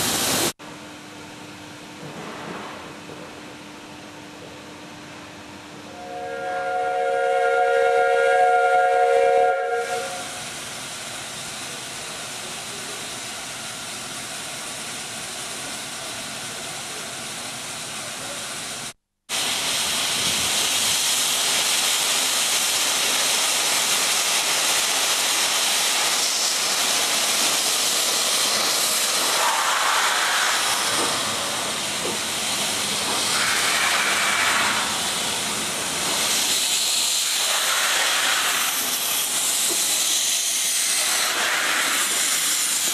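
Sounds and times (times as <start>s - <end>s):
steam hissing: 0.0s - 0.6s, 6.0s - 42.9s
steam whistle blast: 5.9s - 10.4s.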